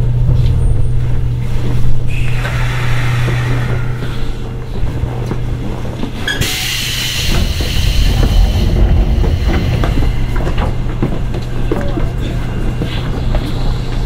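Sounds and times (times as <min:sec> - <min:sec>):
rail rumble: 0:00.0 - 0:14.0
train car low hum: 0:00.0 - 0:14.0
sudden hiss: 0:06.4 - 0:11.0.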